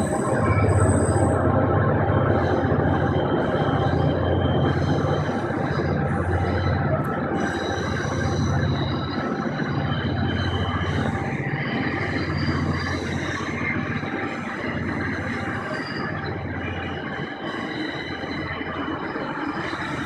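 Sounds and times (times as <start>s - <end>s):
train rumbling on track: 0.0s - 20.0s.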